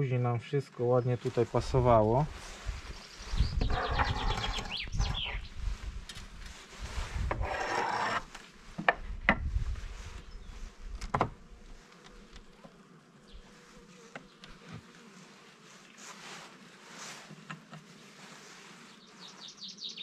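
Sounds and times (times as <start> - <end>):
tool scraping wood: 3.6 - 5.4, 7.2 - 9.0
bees buzzing: 10.2 - 19.9.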